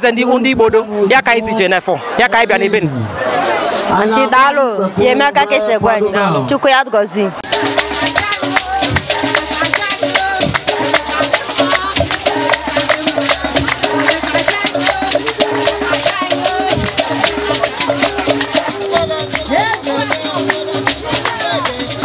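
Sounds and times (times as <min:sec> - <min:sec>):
fast rattling percussion: 0:07.4 - 0:22.0
repeating melody line: 0:07.4 - 0:22.0.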